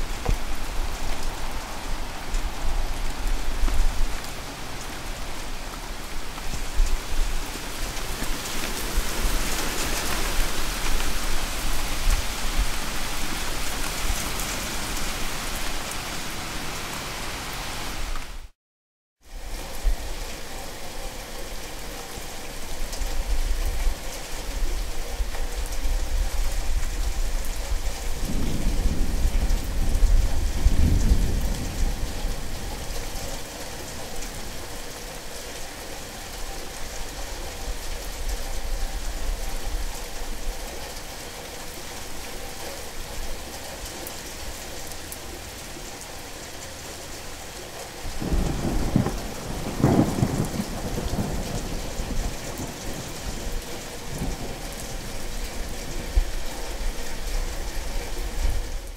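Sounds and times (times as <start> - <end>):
steady rain falling: 0.0 - 18.6, 19.2 - 58.9
thunder rolling: 48.2 - 53.1.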